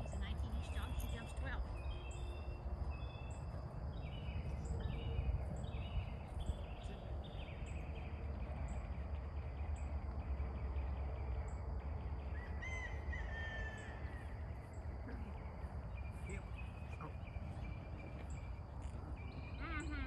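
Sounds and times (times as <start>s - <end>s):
steady low rumble: 0.0s - 20.0s.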